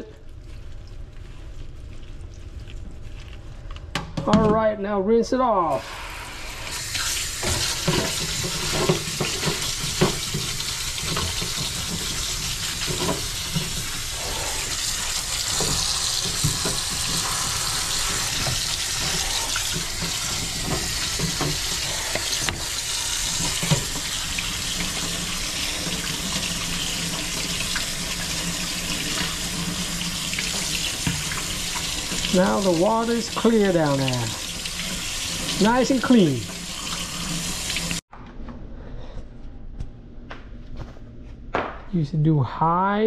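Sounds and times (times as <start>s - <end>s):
faucet water running: 5.6s - 38.0s.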